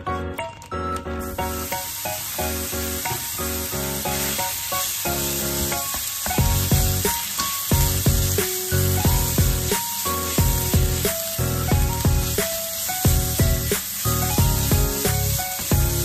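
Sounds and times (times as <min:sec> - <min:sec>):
meat sizzling in a pan: 0:01.2 - 0:16.0
spatula stirring in a pan: 0:01.5 - 0:16.0
background music with bass line: 0:06.4 - 0:12.5, 0:13.1 - 0:16.0.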